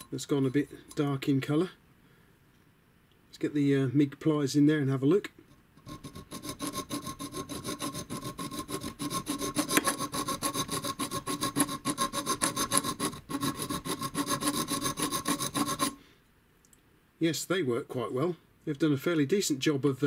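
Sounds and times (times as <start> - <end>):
file rasping on copper pipe: 5.8 - 16.0.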